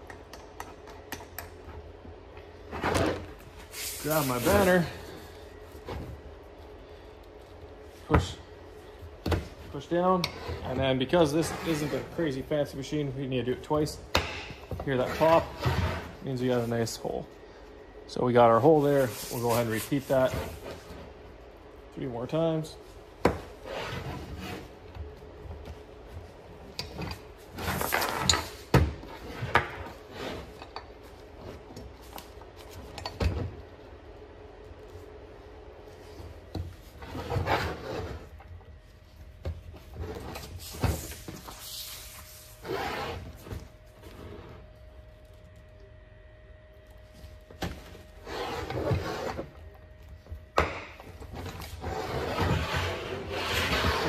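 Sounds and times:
vinyl banner rustling: 2.6s - 6.6s, 18.3s - 21.0s.

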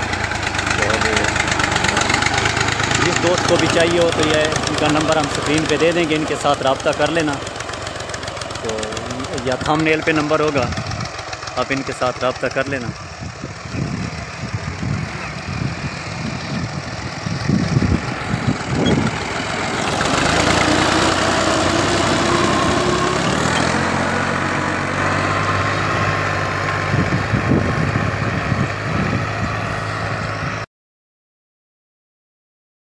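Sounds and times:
tractor diesel engine under load: 0.0s - 30.7s.

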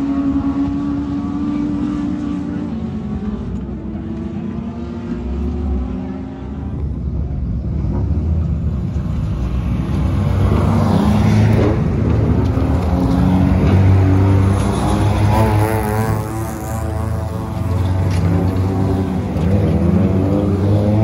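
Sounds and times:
race car engines: 0.0s - 21.0s.

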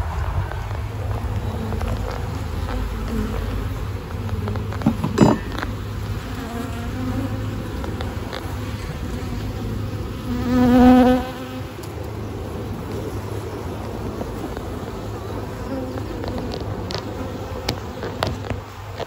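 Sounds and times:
bees buzzing: 0.8s - 19.0s
single bee buzzing close: 1.4s - 11.9s, 15.0s - 18.4s.

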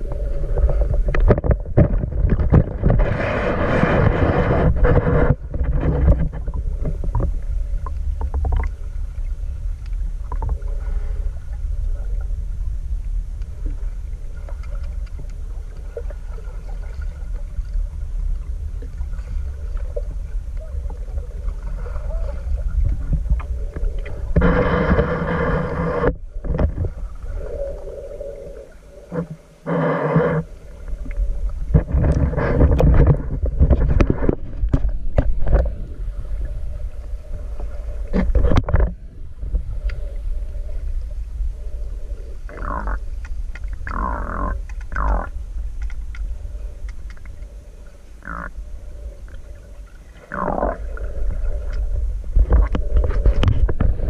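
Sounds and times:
churning water: 0.0s - 41.0s
muffled underwater rumble: 0.0s - 54.0s.

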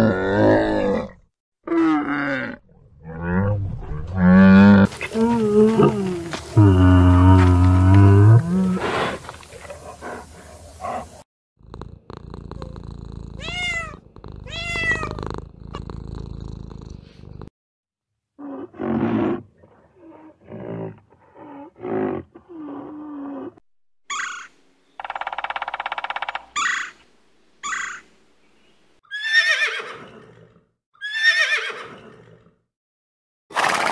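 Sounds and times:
cat purring: 11.6s - 17.5s
cat meowing: 13.4s - 15.2s
horse whinnying: 29.1s - 30.4s, 31.0s - 32.3s.

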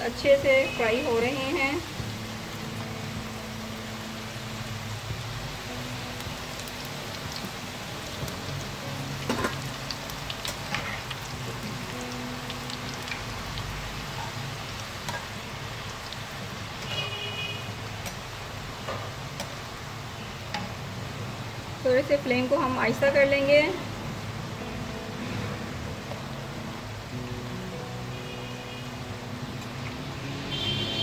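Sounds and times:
dough sizzling in hot oil: 0.0s - 23.2s.

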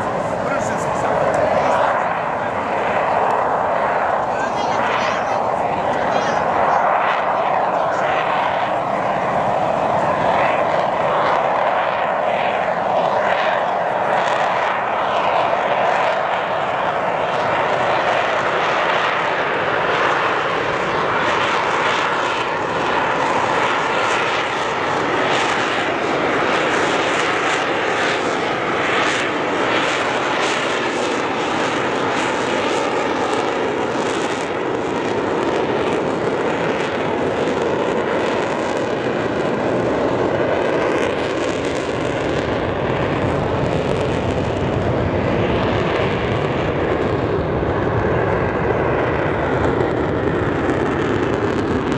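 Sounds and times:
jet engines roaring overhead: 0.0s - 51.9s.

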